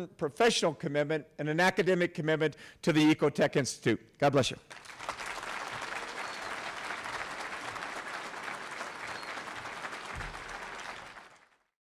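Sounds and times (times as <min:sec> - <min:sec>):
audience applauding: 0:04.7 - 0:11.7.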